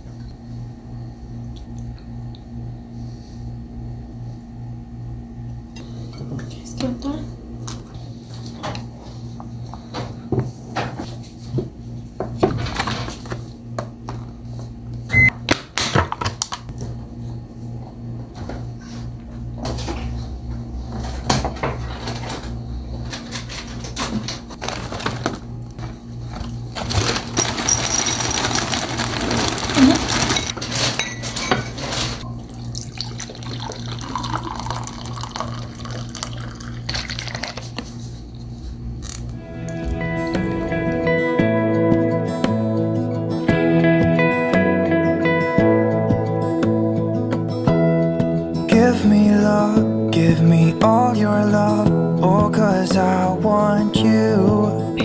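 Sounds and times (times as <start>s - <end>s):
microwave oven humming: 0.0s - 43.6s
doors and dishes clattering: 9.8s - 13.4s, 19.6s - 32.3s
short high beep: 15.1s - 15.3s
dishes clinking: 30.2s - 32.2s.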